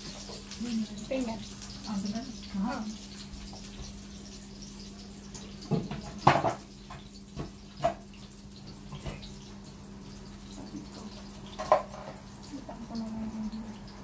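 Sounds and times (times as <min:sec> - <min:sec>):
dishes and utensils clinking: 0:05.6 - 0:07.0, 0:10.5 - 0:12.9.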